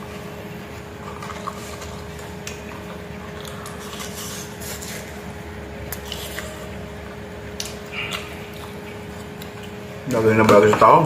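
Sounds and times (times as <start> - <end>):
steady background hum: 0.0 - 11.0
person chewing and lip-smacking: 1.2 - 5.2, 5.8 - 9.9.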